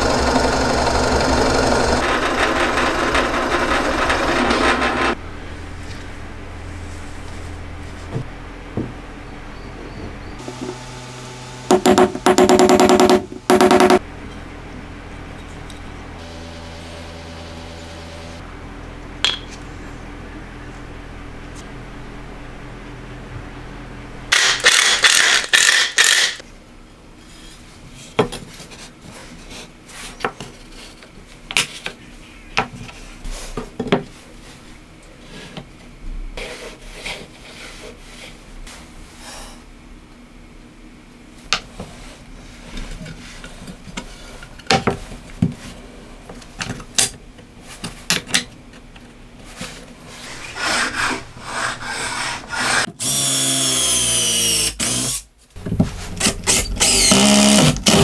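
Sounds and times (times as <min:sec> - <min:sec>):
cordless drill driving screw: 0:53.0 - 0:55.2, 0:56.5 - 0:58.0.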